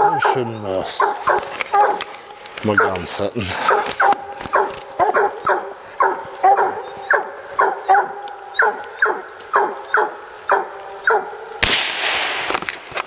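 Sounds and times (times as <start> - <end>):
dogs barking: 0.0 - 11.6
gunshot: 11.6 - 12.8.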